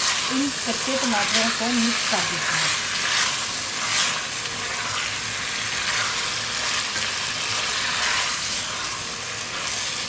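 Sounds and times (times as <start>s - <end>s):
food sizzling in hot oil: 0.0s - 10.0s
wooden spatula stirring and scraping: 0.0s - 10.0s.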